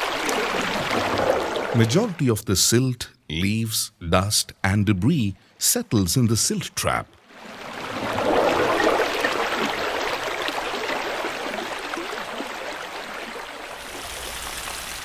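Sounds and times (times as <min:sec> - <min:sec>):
running water: 0:00.0 - 0:02.4, 0:05.6 - 0:15.0.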